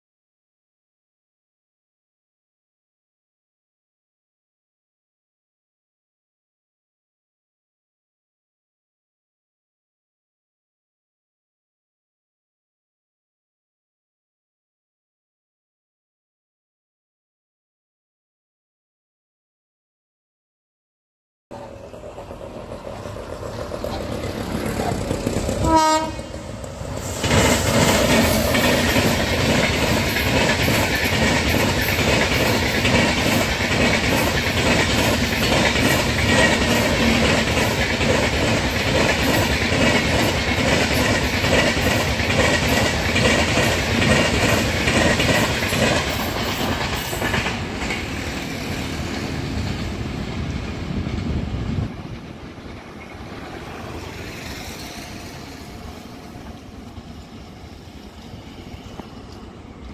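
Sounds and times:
train rushing past: 21.5s - 59.9s
wheels clacking over rail joints: 21.6s - 59.9s
train horn blast: 25.6s - 26.4s.

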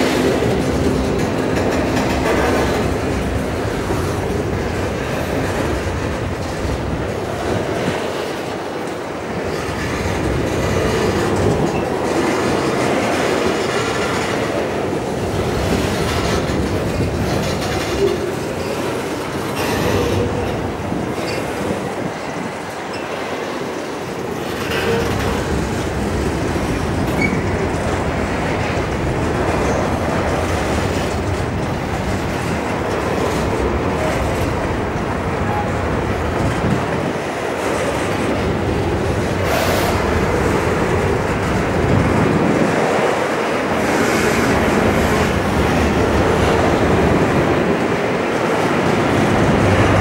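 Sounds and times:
train wheels rumbling and clattering: 0.0s - 50.0s
wheel squeals: 27.1s - 27.6s.

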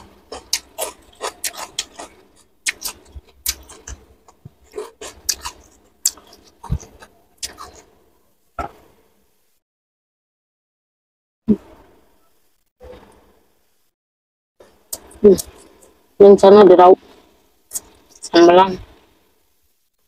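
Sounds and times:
cucumber crunching: 0.0s - 7.9s.

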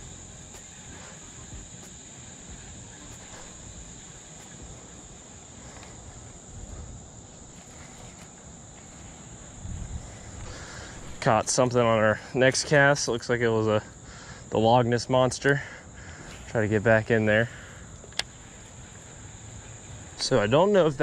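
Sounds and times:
insects chirring: 0.0s - 21.0s.

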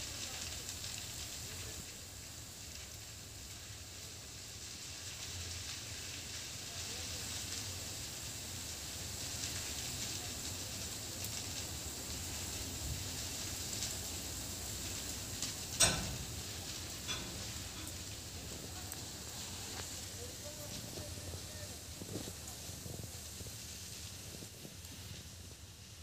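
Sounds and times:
brush fire crackling: 0.0s - 26.0s
loud sharp crack: 14.8s - 20.6s.

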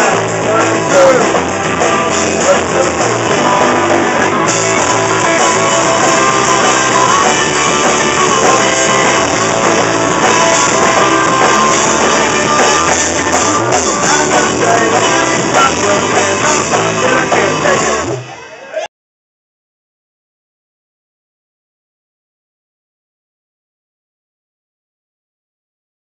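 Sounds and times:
drum kit with cymbals: 0.0s - 18.4s
upright bass: 0.0s - 18.5s
electric guitar: 0.0s - 18.8s.

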